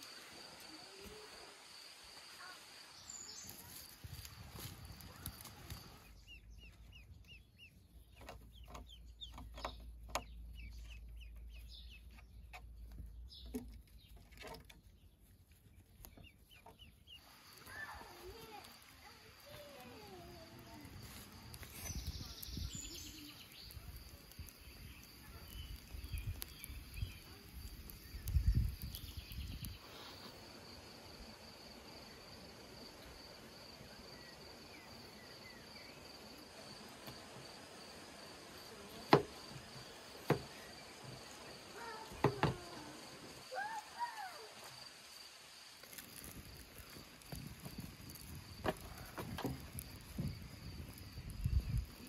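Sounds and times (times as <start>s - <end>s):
insects chirping: 0.0s - 52.0s.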